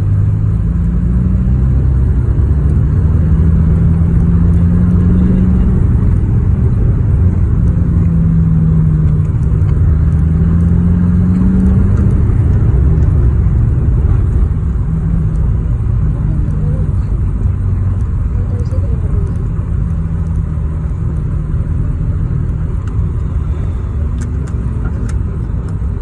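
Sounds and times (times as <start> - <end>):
car engine: 0.0 - 26.0
road rumble: 0.0 - 26.0.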